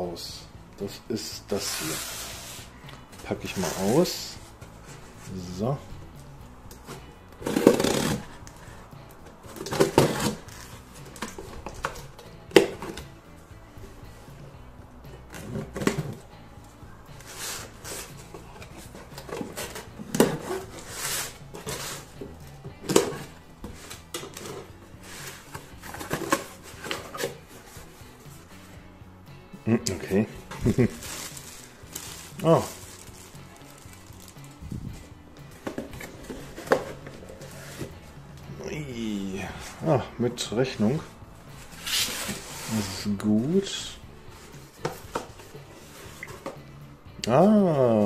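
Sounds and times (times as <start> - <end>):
cardboard scraping and crinkling: 1.4 - 5.8, 6.8 - 8.8, 9.5 - 12.0, 17.2 - 22.2, 22.8 - 27.9, 30.5 - 34.4, 35.6 - 38.1, 40.8 - 43.4
knife slitting cardboard: 9.6 - 10.4.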